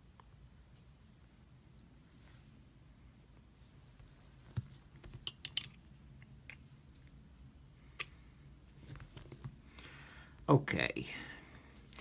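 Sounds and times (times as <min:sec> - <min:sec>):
small metal parts clicking: 0:05.2 - 0:05.8.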